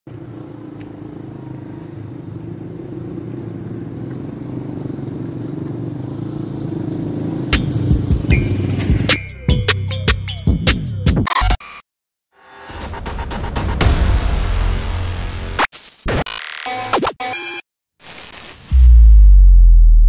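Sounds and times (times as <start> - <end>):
motorcycle engines running: 0.1 - 9.3.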